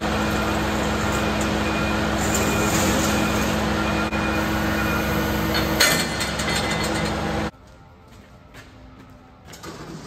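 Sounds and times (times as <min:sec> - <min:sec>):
truck engine humming: 0:00.0 - 0:09.4
metal clatter: 0:05.8 - 0:07.4.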